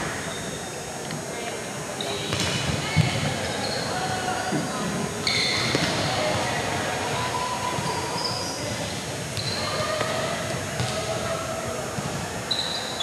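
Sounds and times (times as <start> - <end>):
short high squeaks: 12.5 - 13.0.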